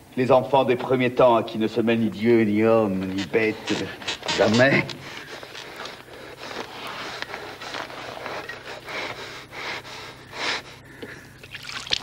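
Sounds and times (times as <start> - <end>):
low electrical hum: 0.0 - 12.0
heavy breathing and snorting: 3.5 - 11.3.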